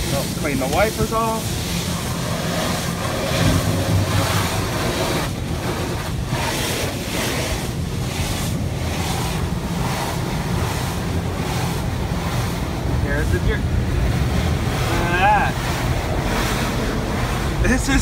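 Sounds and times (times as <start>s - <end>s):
car wash jets spraying on car: 0.0s - 18.0s
low rumble: 1.4s - 6.5s.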